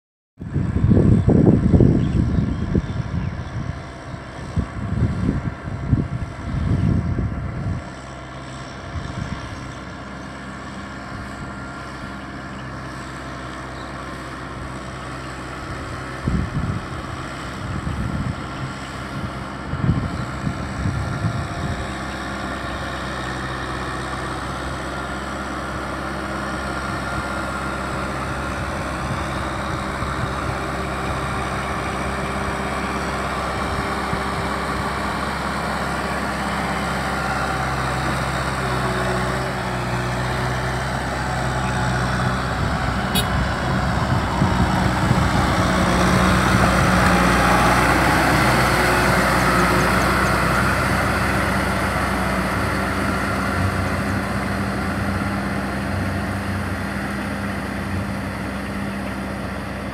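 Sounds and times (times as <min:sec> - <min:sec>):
wind buffeting microphone: 0:00.4 - 0:08.1, 0:08.8 - 0:09.7, 0:15.6 - 0:22.0, 0:27.9 - 0:36.0, 0:39.6 - 0:55.1
tractor diesel engine running: 0:00.4 - 0:59.9.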